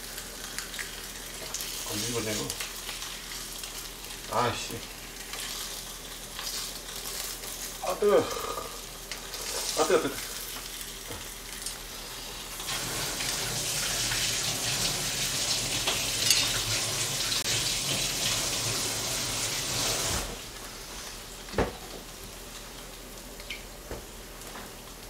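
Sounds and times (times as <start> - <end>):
meat sizzling in a pan: 0.0 - 25.0
kitchen tap running: 12.4 - 20.6.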